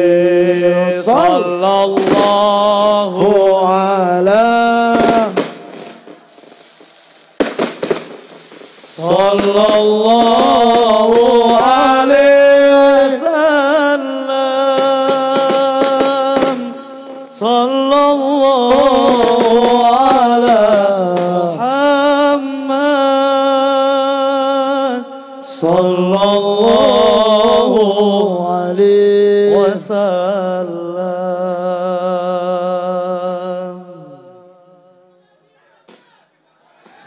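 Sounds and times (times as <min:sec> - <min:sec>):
men chanting: 0:00.0 - 0:05.7, 0:08.9 - 0:37.0.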